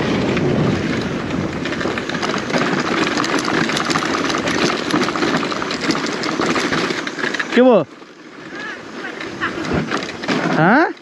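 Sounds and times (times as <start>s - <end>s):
bike knocking on stones: 0.0s - 11.0s
dirt bike engine running: 0.0s - 11.0s.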